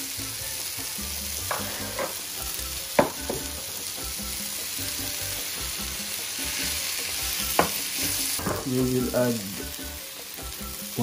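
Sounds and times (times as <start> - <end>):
seafood sizzling in oil: 0.0 - 11.0
wooden spatula knocking pan: 1.4 - 2.2, 2.9 - 3.8, 7.4 - 8.9.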